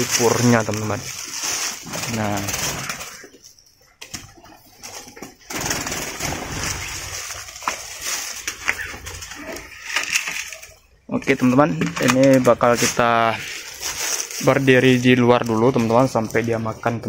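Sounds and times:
doves cooing: 0:00.0 - 0:16.8
birds calling: 0:00.0 - 0:17.0
rustling with small clicks: 0:06.6 - 0:17.0.

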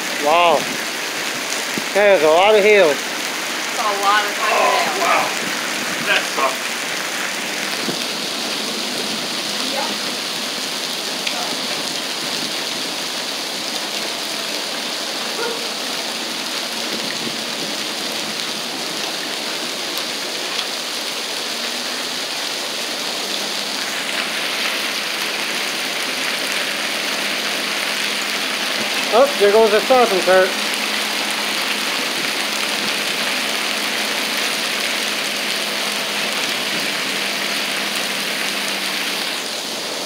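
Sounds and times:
heavy rain on asphalt: 0:00.0 - 0:40.0
hailstones ticking: 0:23.2 - 0:39.4.

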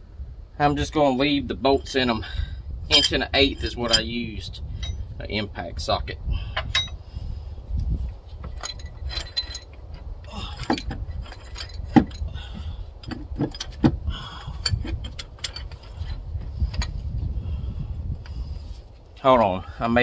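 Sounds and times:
metal clinks: 0:02.9 - 0:04.1, 0:04.7 - 0:05.1, 0:06.6 - 0:07.0, 0:08.4 - 0:17.0.

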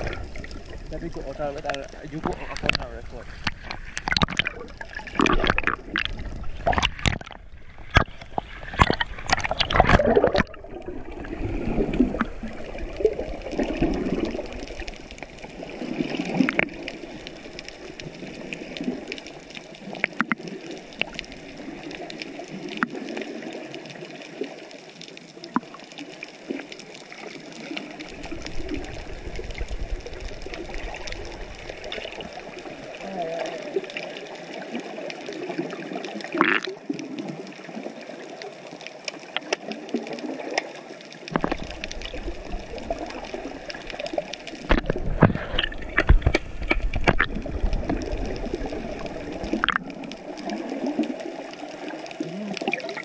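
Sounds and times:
faint clicks: 0:00.0 - 0:10.5, 0:16.4 - 0:37.3, 0:38.3 - 0:53.0
underwater bubbling and gurgling: 0:00.0 - 0:53.0
water splashing against camera: 0:00.0 - 0:53.0.

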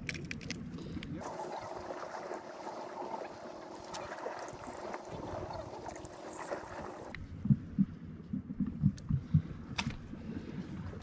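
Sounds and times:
water washing at rocks: 0:01.2 - 0:07.2.

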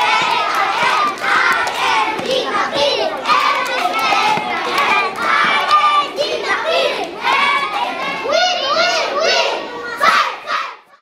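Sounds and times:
hands clapping: 0:00.0 - 0:05.9
boys shouting a cheer: 0:00.0 - 0:11.0.

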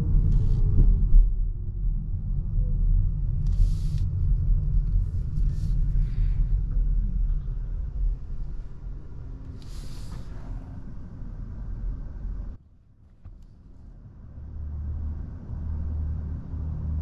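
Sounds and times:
road and tyre rumble: 0:00.0 - 0:17.0
brief hisses: 0:09.6 - 0:10.5.

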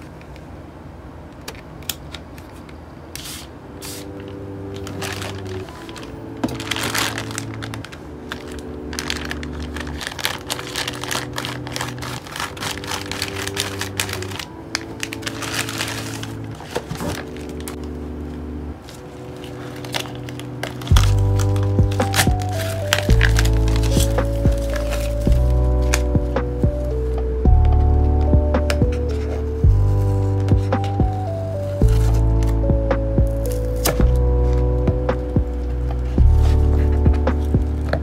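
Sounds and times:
soft background music: 0:02.8 - 0:38.0
plastic pouch crinkling: 0:03.9 - 0:26.3, 0:33.3 - 0:34.7.

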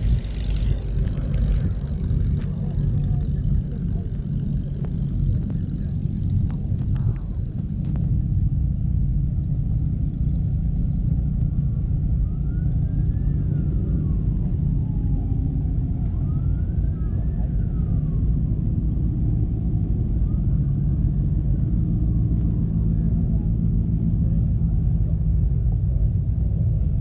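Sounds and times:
low rumble: 0:00.0 - 0:27.0
distant siren wailing: 0:11.6 - 0:23.5.

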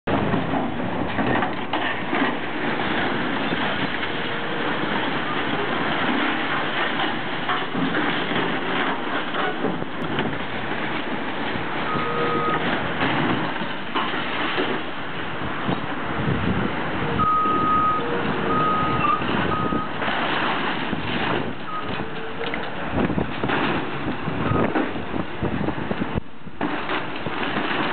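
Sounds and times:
excavator diesel engine under load: 0:00.1 - 0:27.9
crunching of breaking debris: 0:22.9 - 0:25.2, 0:26.6 - 0:27.9.

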